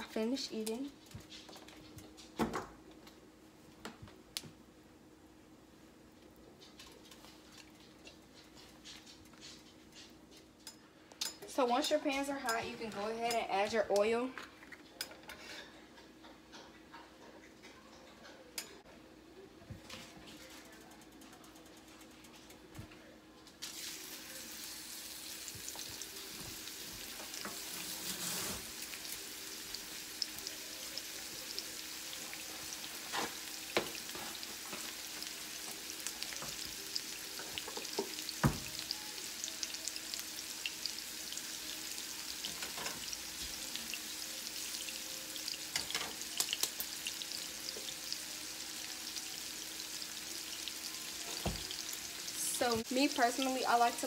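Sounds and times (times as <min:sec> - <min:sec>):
fish sizzling in hot oil: 0:23.6 - 0:54.0.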